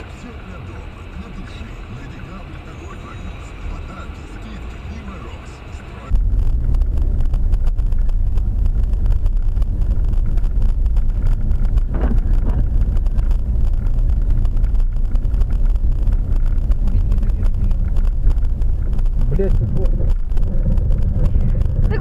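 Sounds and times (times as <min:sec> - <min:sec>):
vehicle rumble: 0:00.0 - 0:22.0
wind buffeting microphone: 0:06.1 - 0:22.0.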